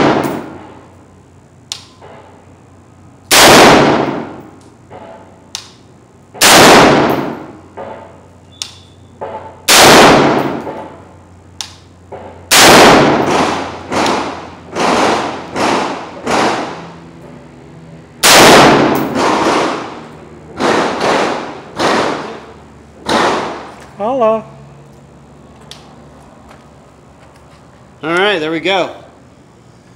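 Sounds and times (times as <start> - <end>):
distant gunshots: 0.0 - 0.6, 3.3 - 4.4, 6.4 - 8.1, 9.2 - 10.9, 12.1 - 16.8, 18.2 - 20.0, 20.6 - 22.4, 23.0 - 23.7
loud gunshots with ringing tail: 0.0 - 0.6, 3.3 - 4.4, 6.4 - 8.2, 9.3 - 11.0, 12.5 - 16.8, 18.2 - 20.0, 20.6 - 22.4, 23.0 - 23.7
lighter gunshots: 0.0 - 0.7, 3.3 - 5.8, 6.4 - 11.0, 11.6 - 16.9, 18.2 - 20.0, 20.6 - 23.8.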